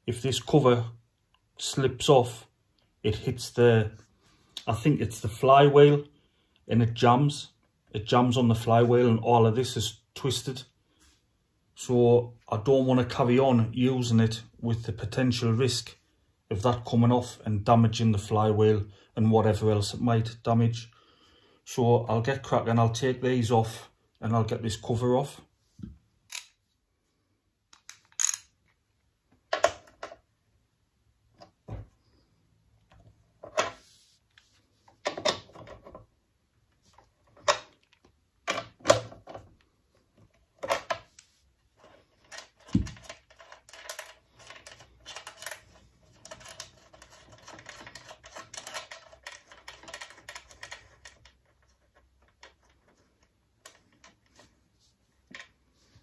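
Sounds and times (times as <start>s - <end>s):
socket ratchet clicking: 26.3s - 26.6s, 27.7s - 28.6s.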